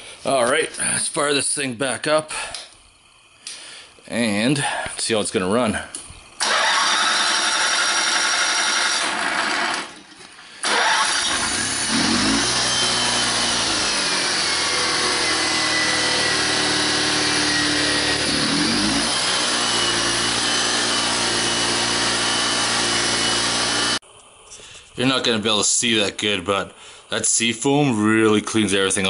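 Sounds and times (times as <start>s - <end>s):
electric starter cranking: 6.4s - 24.0s
generator engine running: 6.4s - 24.0s.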